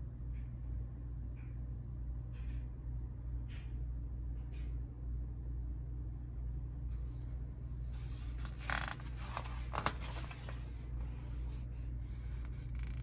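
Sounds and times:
page turning rustle: 7.1s - 13.0s.

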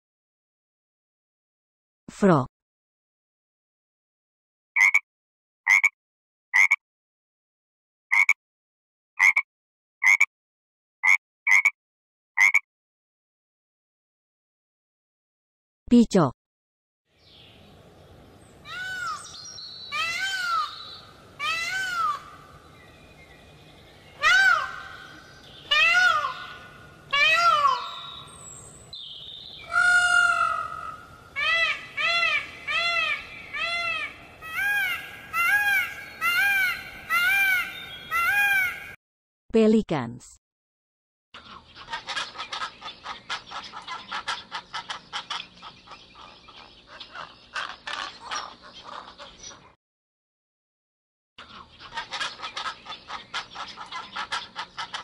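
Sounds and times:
peacock wailing calls: 18.6s - 23.4s, 24.1s - 39.0s.

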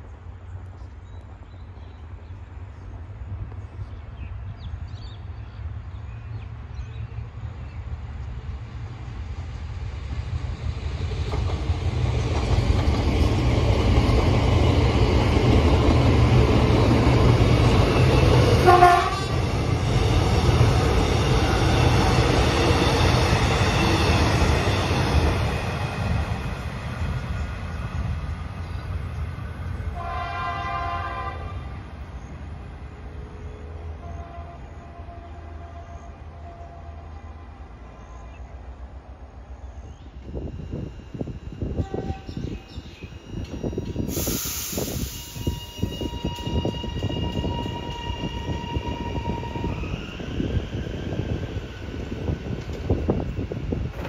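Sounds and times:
electric train passing at speed: 0.0s - 54.0s
train horn blast: 18.6s - 19.5s, 30.0s - 31.8s, 34.0s - 37.0s, 41.8s - 42.6s.

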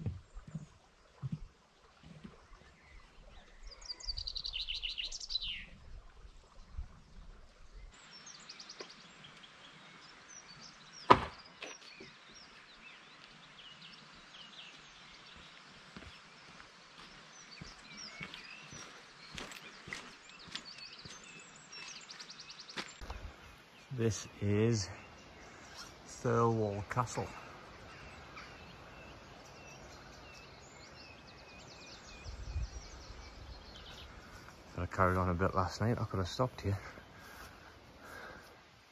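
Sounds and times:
faint outdoor hiss: 0.0s - 38.9s
small birds chirping: 0.0s - 38.9s
loud sharp knock: 11.1s - 11.4s
footsteps ticking: 16.0s - 21.3s
wind rumble on microphone: 31.9s - 34.2s.

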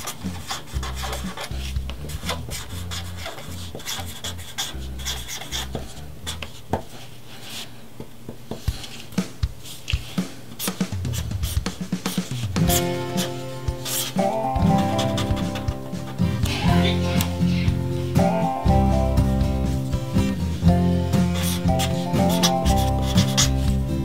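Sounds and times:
pen scratching on paper: 0.0s - 7.7s, 9.6s - 17.4s, 21.2s - 23.8s.

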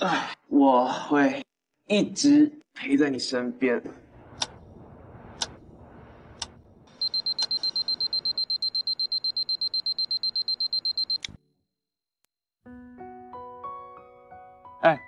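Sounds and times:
clock ticking: 6.4s - 11.2s
rapid electronic alarm beeping: 6.9s - 11.2s.

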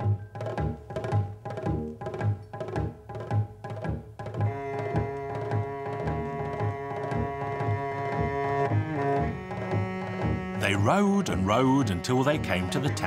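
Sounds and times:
drum beating steadily: 0.0s - 11.4s
held instrumental notes: 0.0s - 13.0s.

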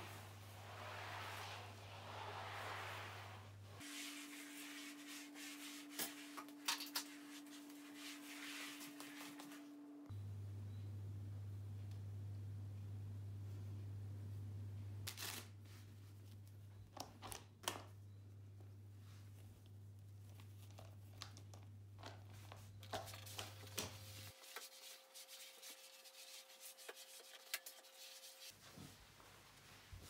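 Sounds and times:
faint rubbing and rustling: 0.0s - 9.6s, 22.9s - 30.0s.

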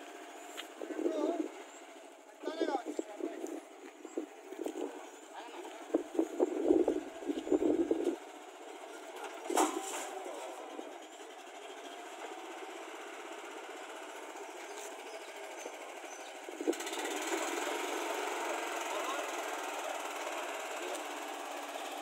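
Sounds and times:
small diesel tractor engine running: 0.0s - 22.0s
sharp clunk: 9.5s - 10.1s.

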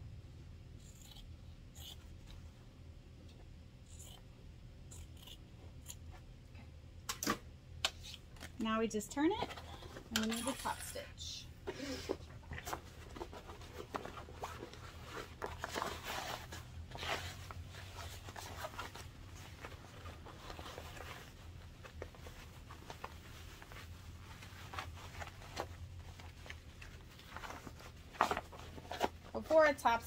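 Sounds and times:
faint low hum: 0.0s - 30.0s
fabric rustling and scraping: 12.5s - 30.0s.

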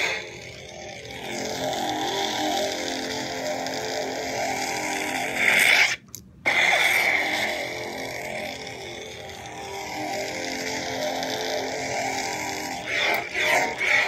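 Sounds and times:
lightsaber whining hum: 0.0s - 14.0s.

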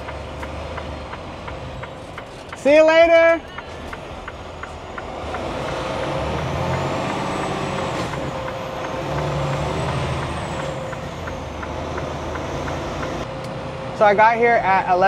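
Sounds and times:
truck diesel engine: 0.0s - 15.0s.

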